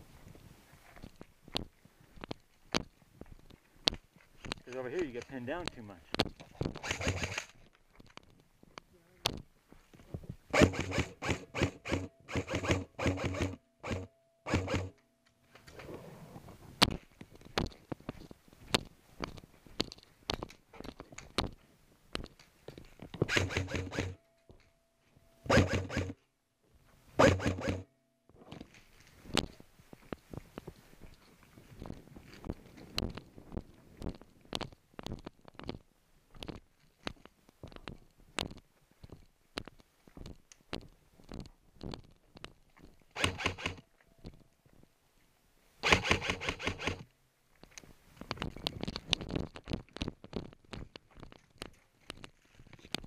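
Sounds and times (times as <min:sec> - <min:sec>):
sharp clicks: 0:03.8 - 0:07.6, 0:10.6 - 0:15.0, 0:23.2 - 0:24.2, 0:25.5 - 0:26.2, 0:43.2 - 0:43.8, 0:45.8 - 0:47.0
airsoft rifle full-auto bursts: 0:06.8 - 0:07.5, 0:10.5 - 0:15.0, 0:23.3 - 0:24.2, 0:25.5 - 0:26.2, 0:27.2 - 0:27.9, 0:43.2 - 0:43.8, 0:45.8 - 0:47.0
scuffs and clatter: 0:28.4 - 0:43.2, 0:47.6 - 0:53.0.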